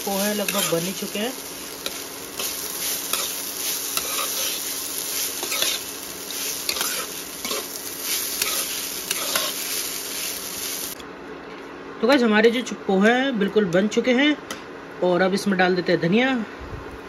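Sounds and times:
rice sizzling: 0.0s - 11.0s
metal spoon scraping a pan: 0.3s - 0.9s, 1.8s - 9.7s.

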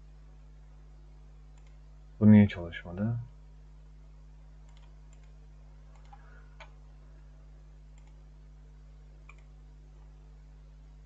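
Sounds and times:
low electrical hum: 0.0s - 11.0s
computer mouse clicks: 1.5s - 1.8s, 4.6s - 6.8s, 7.9s - 8.2s, 9.2s - 10.1s.

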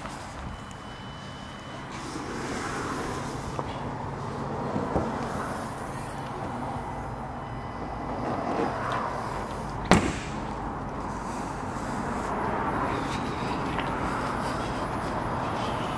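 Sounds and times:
car bonnet slamming shut: 9.8s - 10.5s.

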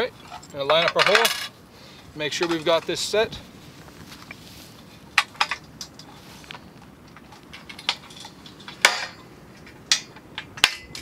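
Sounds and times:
metal rails clinking and knocking: 0.0s - 1.5s, 5.2s - 6.2s, 7.1s - 11.0s.

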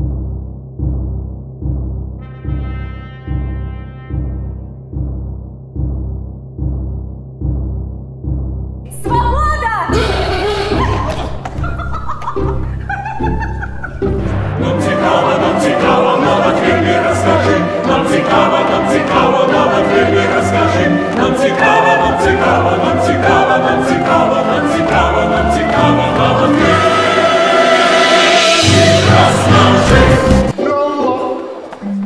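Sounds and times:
musical accompaniment with steady beat: 12.4s - 30.6s
chorus singing: 14.0s - 31.8s.

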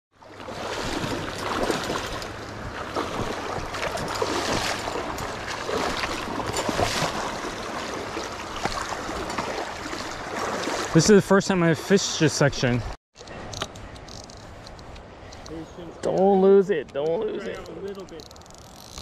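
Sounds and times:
water splashing from wading legs: 0.2s - 11.2s
river current rushing: 0.4s - 11.8s.

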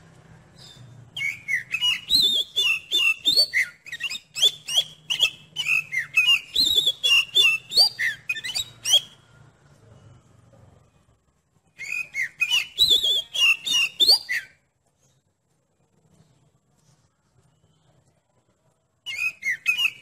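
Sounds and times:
bird singing whistled notes: 0.5s - 9.2s, 11.7s - 14.6s, 19.0s - 20.0s.

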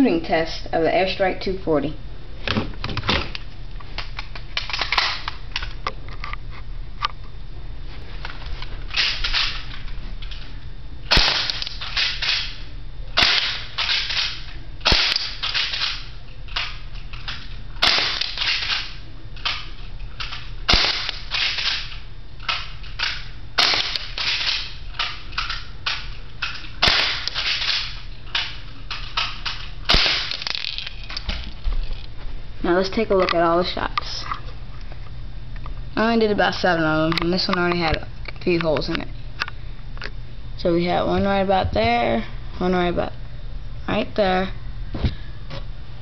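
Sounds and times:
airsoft gun shots: 11.1s - 12.5s, 13.2s - 16.0s, 17.8s - 18.9s, 20.7s - 21.9s, 23.6s - 24.7s, 26.8s - 27.9s, 29.9s - 30.6s.

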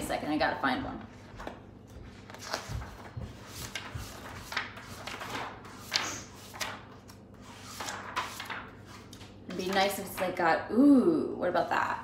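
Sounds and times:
book pages flipping: 1.0s - 9.9s.

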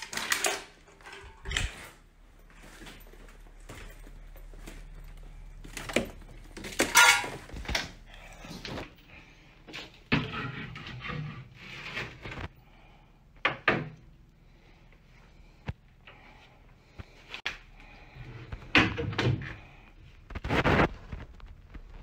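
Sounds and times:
wooden doors knocking and banging: 13.4s - 14.0s.

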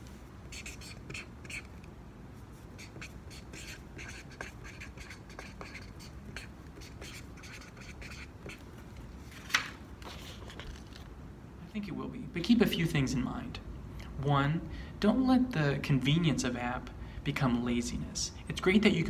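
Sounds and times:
marker scratching on paper: 0.4s - 1.9s, 2.5s - 8.6s.

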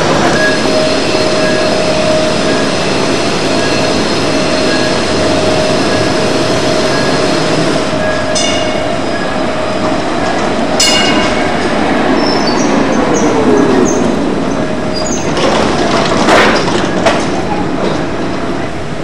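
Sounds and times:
high wheel squeal: 0.0s - 9.5s, 10.8s - 15.4s
tram wheels rumbling on rails: 0.0s - 19.0s
tram whine: 0.0s - 19.0s.

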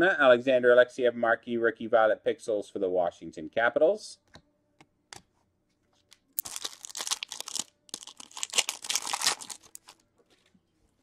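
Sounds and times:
foil pack tearing and crinkling: 6.4s - 10.0s.

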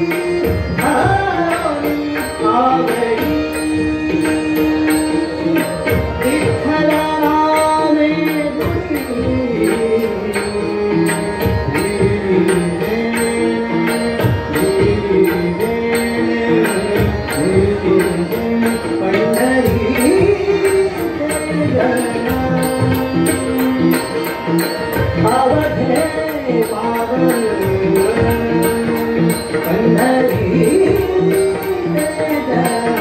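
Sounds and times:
harmonium notes: 0.0s - 33.0s
man singing: 0.0s - 33.0s
tabla strokes: 0.0s - 33.0s.

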